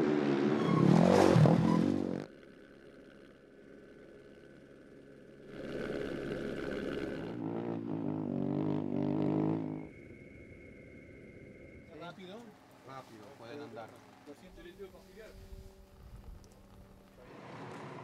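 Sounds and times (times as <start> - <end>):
motorcycle engine running hard: 1.8 - 9.9
motorcycle passing at speed: 5.5 - 10.0, 15.4 - 18.0.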